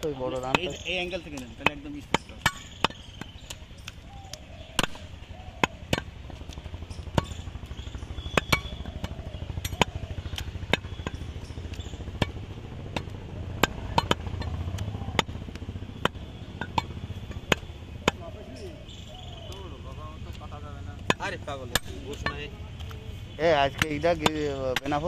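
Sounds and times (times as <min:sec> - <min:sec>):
low engine-like drone: 0:00.0 - 0:25.0
knife striking wooden block: 0:00.4 - 0:06.1.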